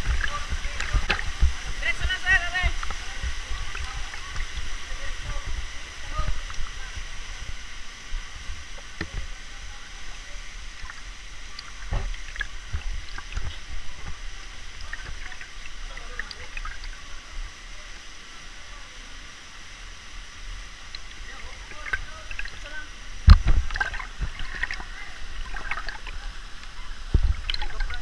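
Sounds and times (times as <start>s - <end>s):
waterfall rushing: 0.0s - 10.7s
water gurgling and sloshing: 0.0s - 18.5s, 19.4s - 28.0s
low thumps in water: 23.2s - 24.8s.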